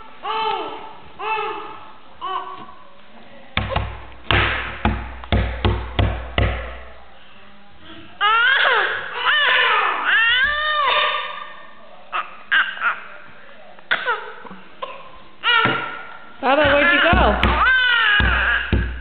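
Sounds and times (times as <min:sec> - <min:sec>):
baby slapping wooden table: 0:03.6 - 0:06.7, 0:16.6 - 0:19.0
baby squealing: 0:08.2 - 0:11.5, 0:16.7 - 0:18.8.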